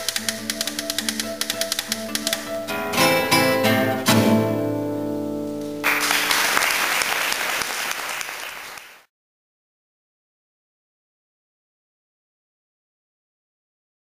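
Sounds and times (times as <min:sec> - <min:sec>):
classical guitars chord: 0:00.4 - 0:06.6
audience applause: 0:05.8 - 0:09.1.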